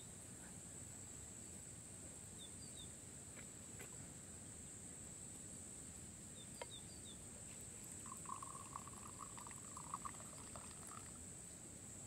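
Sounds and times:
tea pouring into glass: 0:07.8 - 0:11.2.

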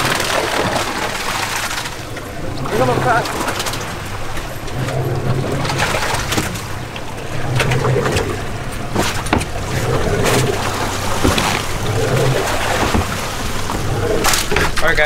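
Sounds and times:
boat engine idling: 0:00.0 - 0:15.0
water noise: 0:00.0 - 0:15.0
wind: 0:00.0 - 0:15.0
sharp knocks and clicks: 0:08.9 - 0:09.6, 0:11.2 - 0:11.8.

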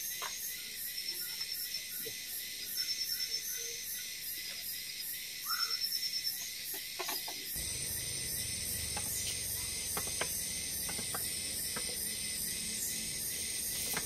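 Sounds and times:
forest insects chirring: 0:00.0 - 0:14.0
high insect trill: 0:07.5 - 0:14.0
stream water rushing: 0:07.6 - 0:14.0.

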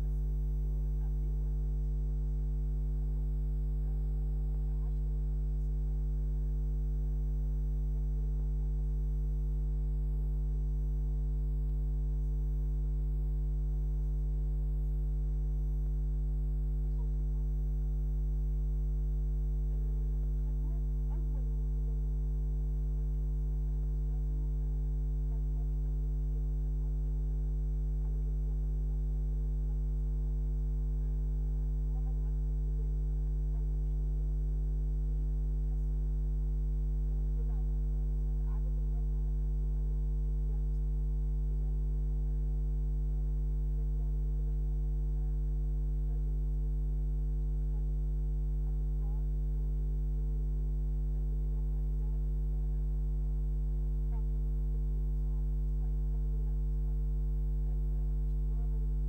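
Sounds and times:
low electrical hum: 0:00.0 - 0:45.3, 0:52.0 - 0:52.2, 0:57.6 - 0:59.0.

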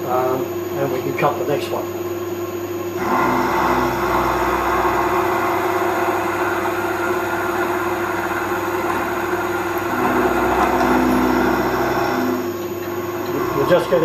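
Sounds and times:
steady machine hum: 0:00.0 - 0:14.0
milling machine cutting metal: 0:03.0 - 0:14.0.

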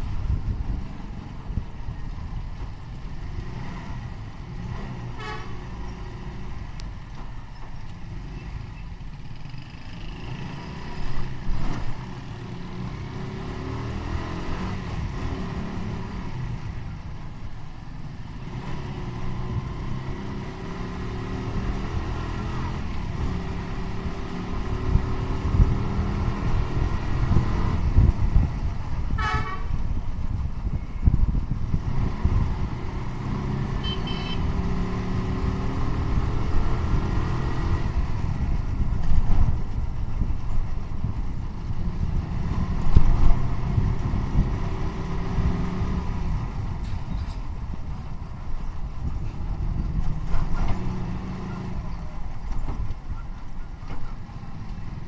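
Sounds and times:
motorcycle engine and road rumble: 0:00.0 - 0:55.0
vehicle horn tooting: 0:05.2 - 0:05.6, 0:29.1 - 0:29.8, 0:33.7 - 0:34.6.

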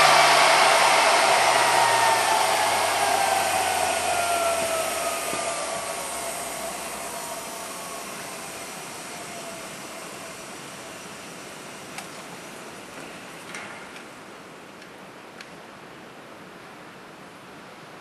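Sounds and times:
grinding wheel motor spinning down: 0:00.0 - 0:11.9.

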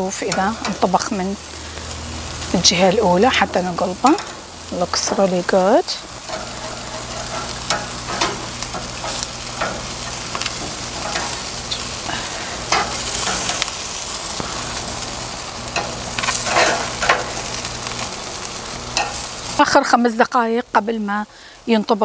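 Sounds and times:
chicken sizzling on a grill: 0:00.0 - 0:22.0
metal tongs clicking on grates: 0:00.1 - 0:01.3, 0:03.9 - 0:13.8, 0:15.6 - 0:19.3.

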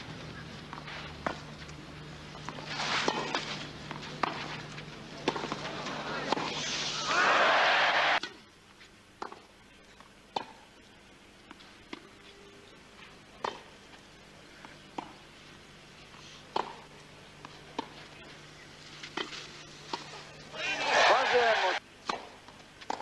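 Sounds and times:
faint steady hum: 0:00.0 - 0:23.0
tennis ball struck by racquets: 0:13.4 - 0:13.7, 0:16.5 - 0:16.9, 0:21.2 - 0:23.0.

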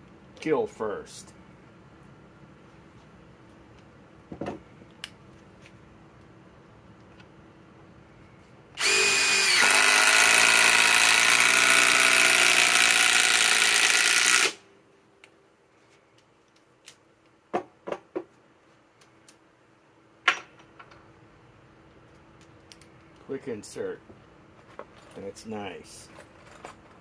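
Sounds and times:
impact driver driving screw: 0:08.8 - 0:14.6.

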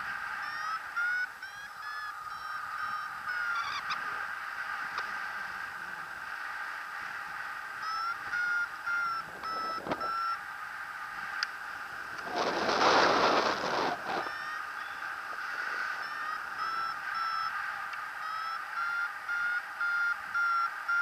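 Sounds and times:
variometer beeping: 0:00.4 - 0:04.0, 0:07.8 - 0:10.4, 0:13.7 - 0:21.0
wind rushing over microphone: 0:09.2 - 0:10.2, 0:11.2 - 0:14.5.

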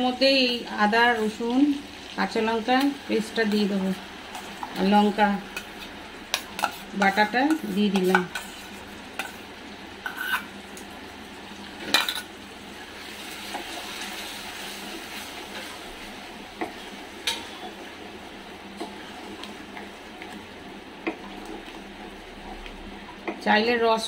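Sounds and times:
paste sizzling in hot oil: 0:01.0 - 0:10.7, 0:11.5 - 0:22.8
wooden spatula stirring: 0:05.6 - 0:09.4
steel spoon scraping steel bowl: 0:06.3 - 0:09.4, 0:10.1 - 0:10.5.

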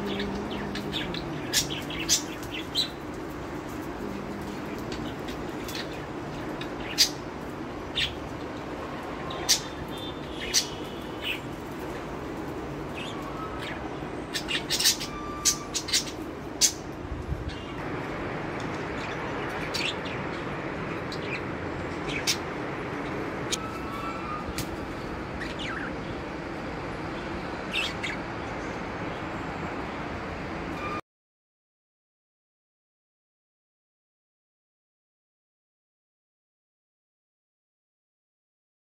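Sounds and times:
steady background noise: 0:00.0 - 0:31.0.

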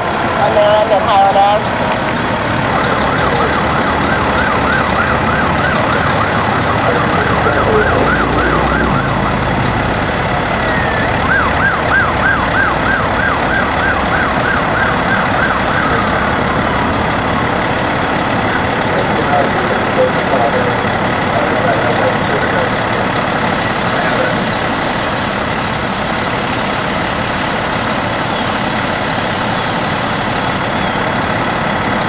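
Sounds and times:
siren yelping: 0:02.4 - 0:17.5.

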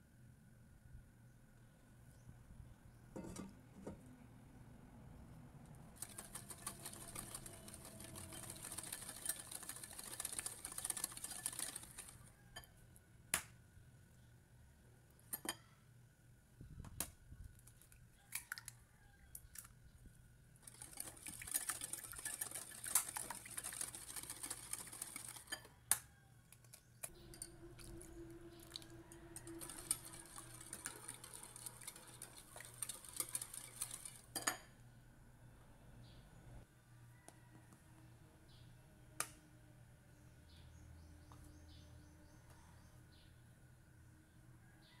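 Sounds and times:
whisk scraping and clinking in bowl: 0:06.0 - 0:12.2, 0:20.6 - 0:25.7, 0:27.2 - 0:34.6.

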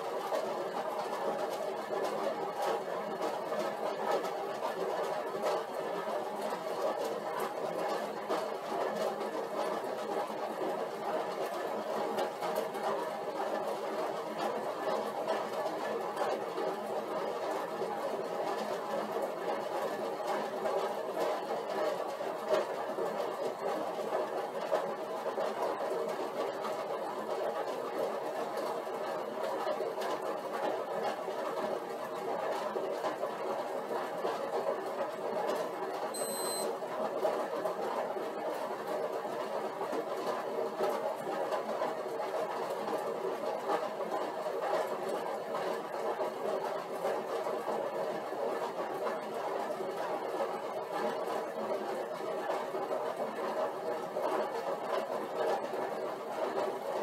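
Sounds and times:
exercise bike whirring: 0:00.0 - 0:57.0
short high beep: 0:36.2 - 0:36.7.

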